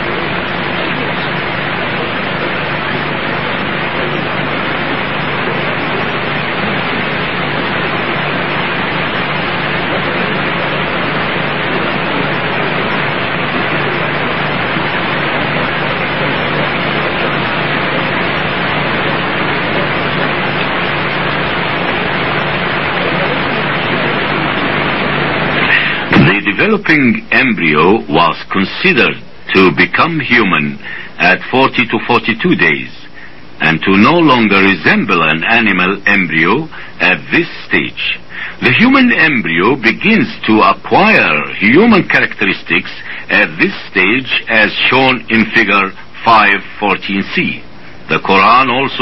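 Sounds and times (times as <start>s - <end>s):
low hum: 0.0s - 49.0s
steady hiss: 0.0s - 49.0s.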